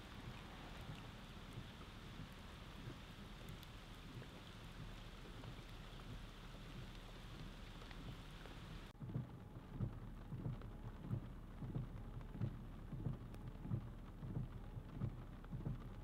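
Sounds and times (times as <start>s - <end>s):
rain falling on pooled water: 0.0s - 16.0s.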